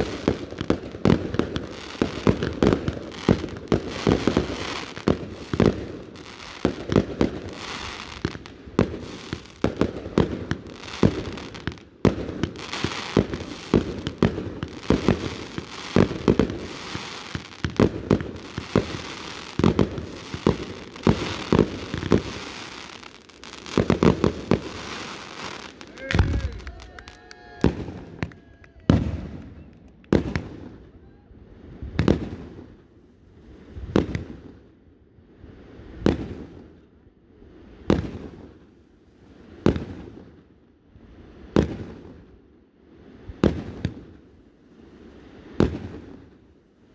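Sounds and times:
firework crackle: 0.0 - 30.8.

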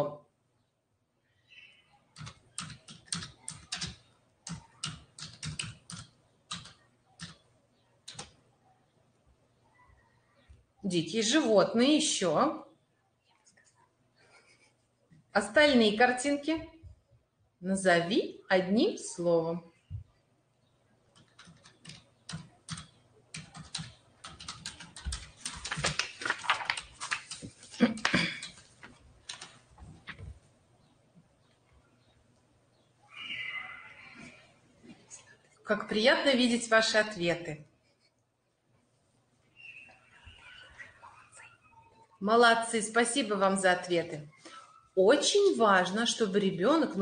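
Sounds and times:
typing on computer keyboard: 2.2 - 8.4, 21.1 - 30.2.

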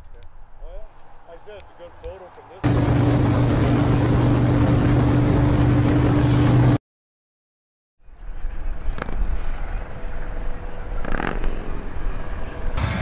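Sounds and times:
motorcycle engine cruising: 2.6 - 6.8, 8.7 - 13.0
wind rush on microphone: 2.6 - 6.8.

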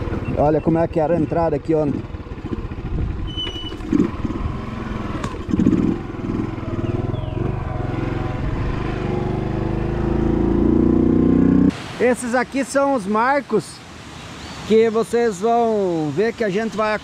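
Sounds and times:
small motorcycle engine running: 1.8 - 11.3.

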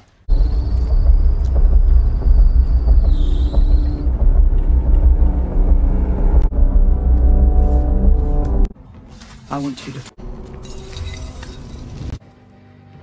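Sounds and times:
car engine and road rumble: 0.3 - 12.2.

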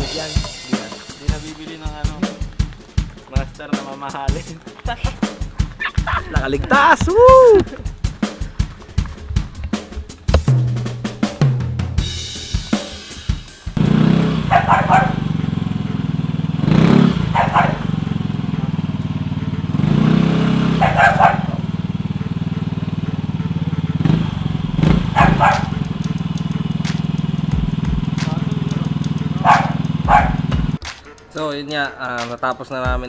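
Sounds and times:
scooter engine idling and revving: 0.0 - 30.8
dog barking: 14.4 - 16.2, 17.2 - 19.8, 20.4 - 26.3, 29.3 - 32.2.

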